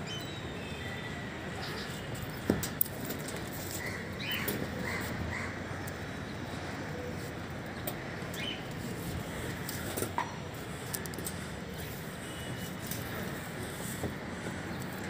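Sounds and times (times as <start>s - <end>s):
city background noise: 0.0s - 15.0s.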